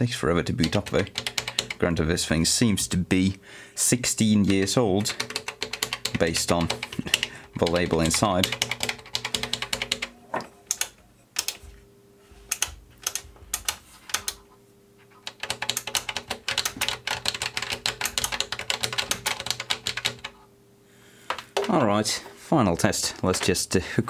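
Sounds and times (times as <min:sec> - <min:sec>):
faint steady hum: 0:00.0 - 0:24.0
push buttons clicking: 0:10.4 - 0:11.7.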